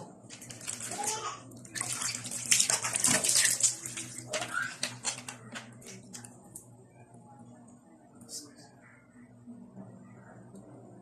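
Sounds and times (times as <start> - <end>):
water splashing: 0.3 - 5.2.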